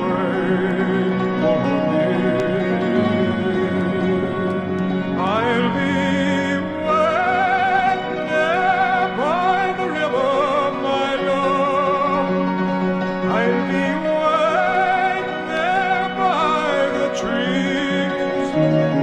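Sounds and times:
held instrumental notes: 0.0 - 19.0
man singing operatically: 0.0 - 19.0.

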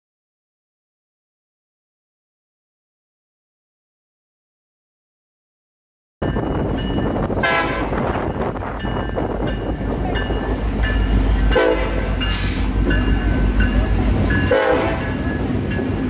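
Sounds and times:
freight train rumbling past: 6.2 - 16.0
locomotive horn blasts: 7.4 - 8.1, 11.5 - 12.6, 14.4 - 15.2.

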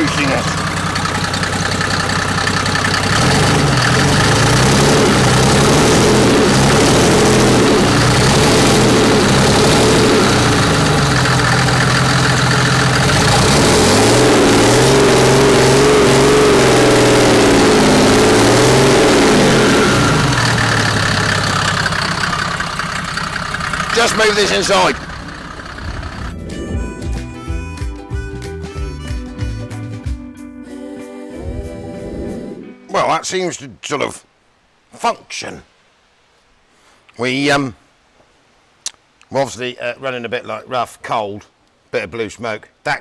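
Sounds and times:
diesel engine revving: 0.0 - 27.6.

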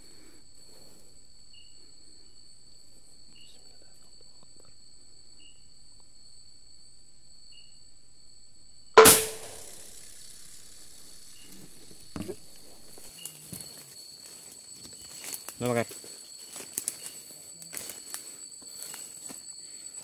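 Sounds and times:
crickets trilling: 0.0 - 20.0
air rifle shot: 9.0 - 10.5.

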